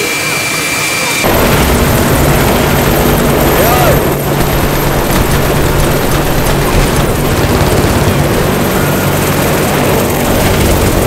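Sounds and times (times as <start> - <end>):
helicopter engine and rotor: 0.0 - 11.0.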